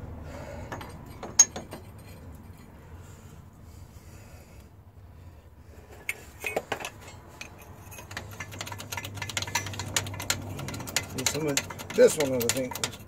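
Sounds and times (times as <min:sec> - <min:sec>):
irregular metallic clicks: 0:08.0 - 0:13.0.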